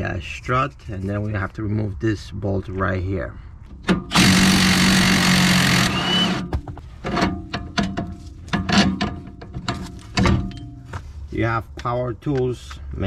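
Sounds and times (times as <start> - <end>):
clicks and knocks of metal parts: 6.6 - 10.8.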